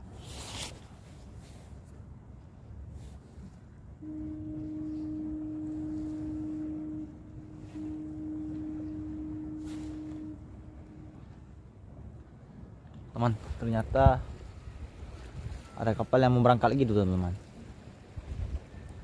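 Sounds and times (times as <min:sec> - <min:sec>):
ship's horn blasts: 0:03.0 - 0:12.7.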